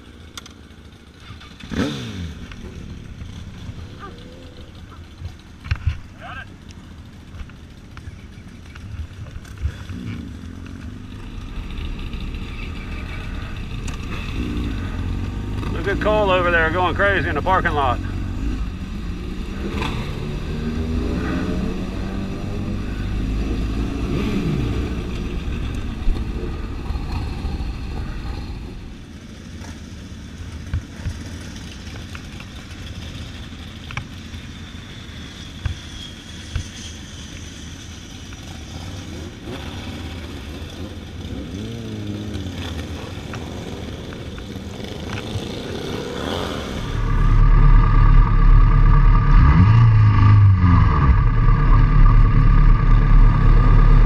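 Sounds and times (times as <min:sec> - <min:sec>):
motorcycle engine revving: 0:00.0 - 0:54.0
heavy low rumble: 0:09.1 - 0:29.0, 0:46.7 - 0:54.0.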